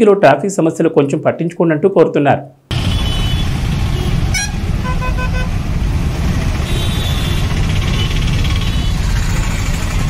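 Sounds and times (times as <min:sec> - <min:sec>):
traffic rumble: 0:02.7 - 0:10.0
vehicle horn beeps: 0:02.8 - 0:05.5, 0:06.7 - 0:09.0.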